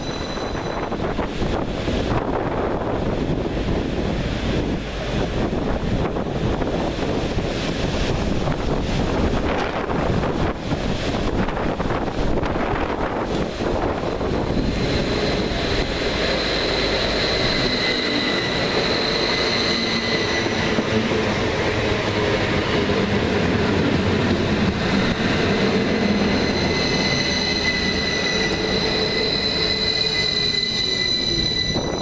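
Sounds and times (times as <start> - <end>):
train wheels rumbling: 0.0 - 32.0.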